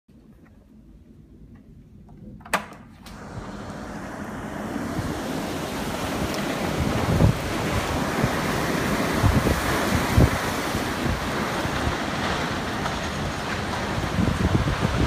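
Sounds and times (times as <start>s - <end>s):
storm wind rushing through trees: 3.1s - 15.0s
wind buffeting microphone: 3.1s - 15.0s.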